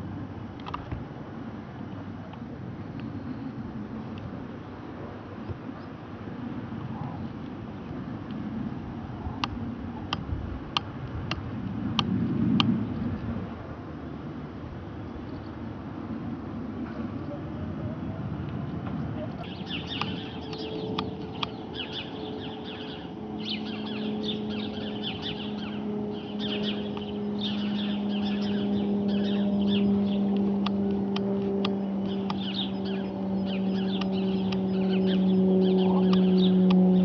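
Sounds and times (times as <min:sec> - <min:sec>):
propeller aircraft droning: 0:00.0 - 0:37.0
small birds chirping: 0:18.6 - 0:37.0.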